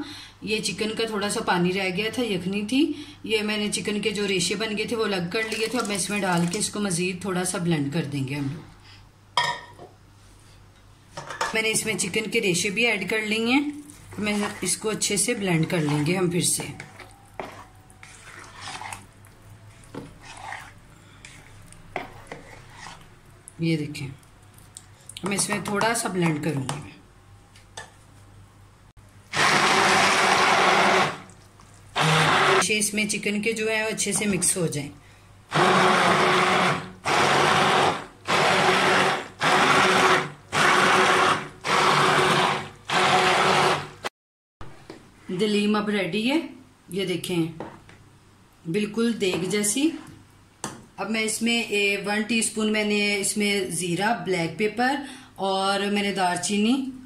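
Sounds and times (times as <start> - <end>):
spoon stirring thick food: 5.3 - 6.8, 13.7 - 23.6, 24.2 - 26.8, 29.7 - 32.6
hand blender pulsing: 16.9 - 19.0, 29.3 - 31.2, 32.0 - 32.6, 35.5 - 44.0.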